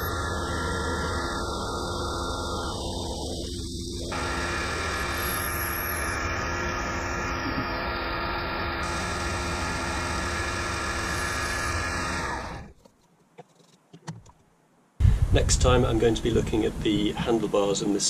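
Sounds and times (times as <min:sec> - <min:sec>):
milling machine drilling metal: 0:00.0 - 0:12.7
low hum: 0:00.0 - 0:12.8.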